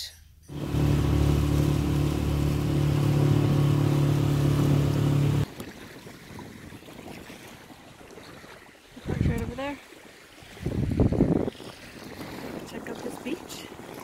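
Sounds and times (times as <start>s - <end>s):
faint wind: 0.0s - 14.0s
outboard motor running: 0.5s - 9.6s
water noise: 0.5s - 14.0s.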